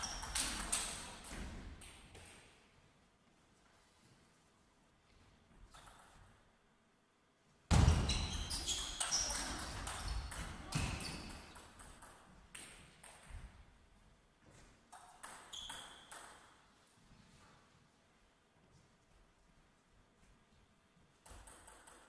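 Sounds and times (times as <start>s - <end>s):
table tennis ball hits: 15.0s - 16.6s, 21.3s - 22.0s.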